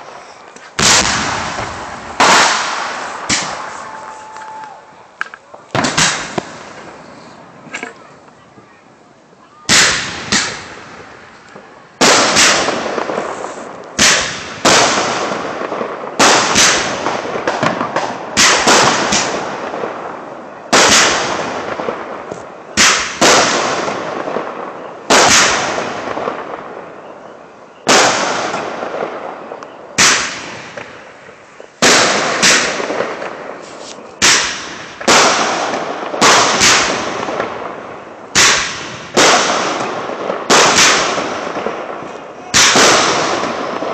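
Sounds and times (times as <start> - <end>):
firework shells bursting: 0.0 - 7.0, 27.9 - 43.9.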